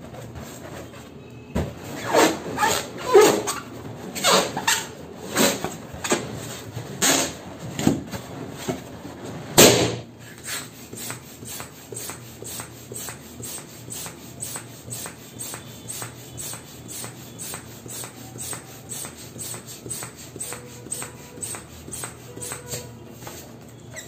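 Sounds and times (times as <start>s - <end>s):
balloon bursting bang: 9.6s - 10.1s
hand balloon pump strokes: 10.2s - 24.0s
hands rubbing balloon: 10.2s - 24.0s.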